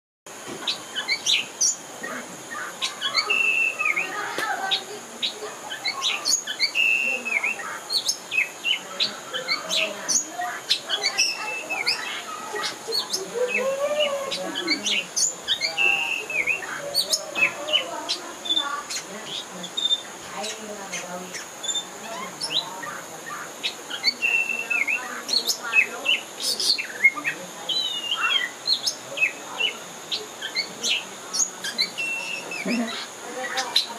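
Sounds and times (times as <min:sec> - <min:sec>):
bird singing whistles and chirps: 0:02.6 - 0:33.9.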